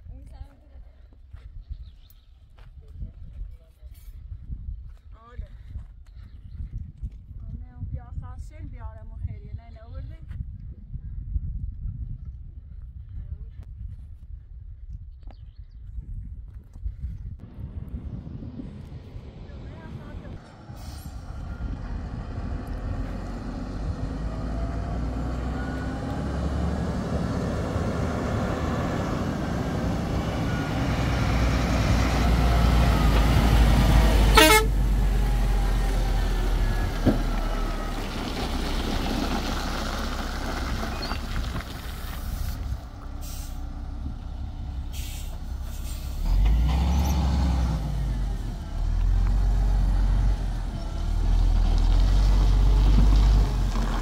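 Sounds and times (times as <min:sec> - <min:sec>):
dump truck diesel engine: 0:17.4 - 0:54.0.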